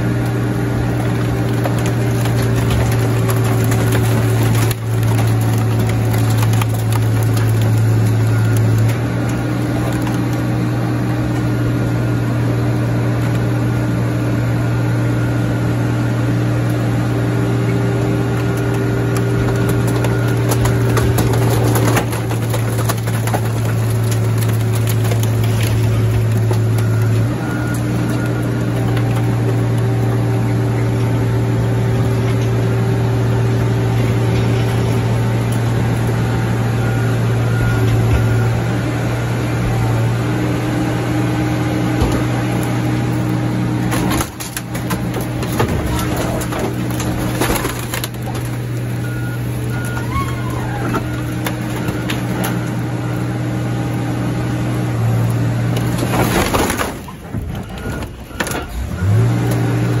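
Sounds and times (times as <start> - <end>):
metal clanks and crunches: 0.0 - 11.7, 17.7 - 36.4, 41.8 - 53.2, 54.9 - 60.0
heavy diesel engine running: 0.0 - 60.0.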